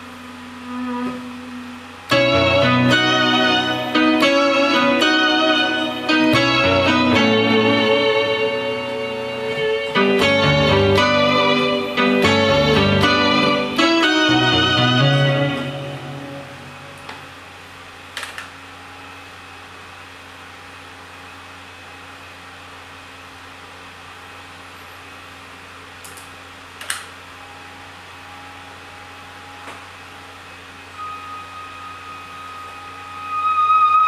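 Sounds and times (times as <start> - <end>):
faint held synth note: 0.0 - 4.0, 28.7 - 34.0
synthesizer hum and hiss: 0.0 - 34.0.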